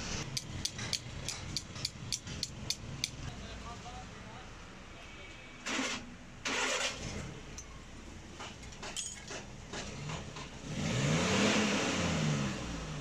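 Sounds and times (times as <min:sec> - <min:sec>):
vehicle engine revving: 0:09.7 - 0:13.0.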